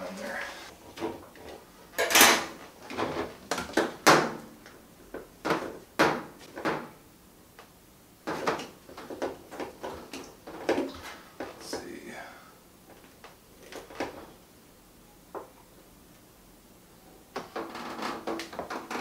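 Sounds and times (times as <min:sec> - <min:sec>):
plastic hoses knocking and clattering: 0:05.1 - 0:07.0, 0:08.3 - 0:11.6.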